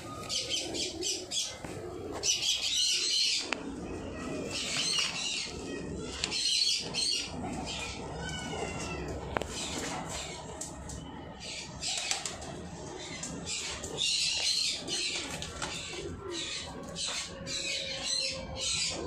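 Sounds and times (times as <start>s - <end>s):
wing flapping: 11.9s - 12.6s.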